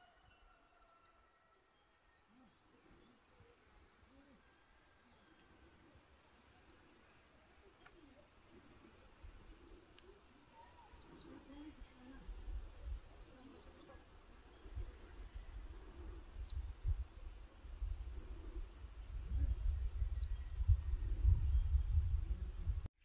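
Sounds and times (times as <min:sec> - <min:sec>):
faint bird chirps: 0:00.0 - 0:18.2.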